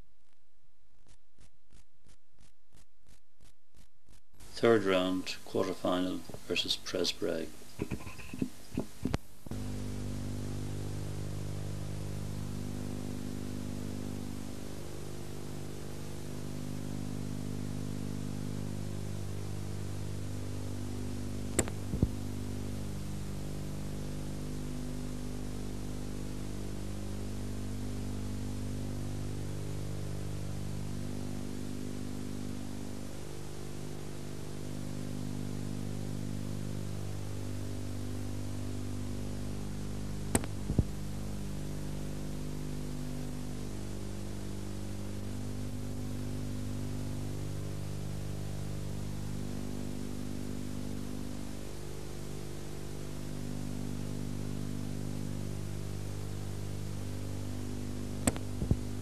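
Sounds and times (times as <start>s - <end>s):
electrical mains hum: 0.0s - 59.0s
tape hiss: 0.0s - 59.0s
sharp clicks: 21.5s - 22.2s, 40.3s - 40.9s, 58.2s - 58.8s.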